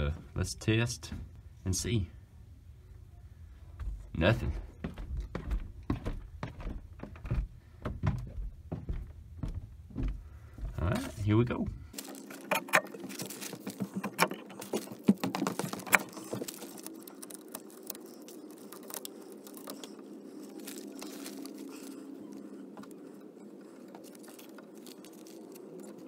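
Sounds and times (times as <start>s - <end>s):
steady low hum: 0.0s - 15.2s
hands handling wires: 10.9s - 26.0s.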